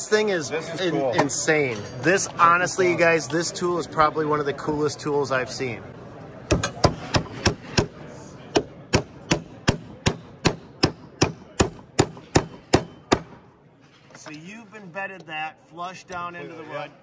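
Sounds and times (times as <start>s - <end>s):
hammer striking nail into wood: 6.5s - 13.4s.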